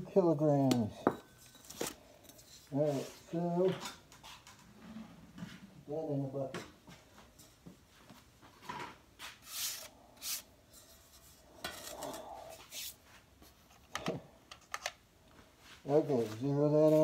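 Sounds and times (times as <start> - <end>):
scraping and rustling handling: 15.5 - 17.0.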